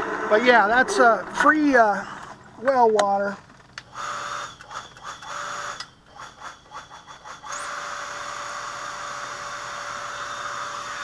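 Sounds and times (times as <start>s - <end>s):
water pump whirring: 0.0s - 11.0s.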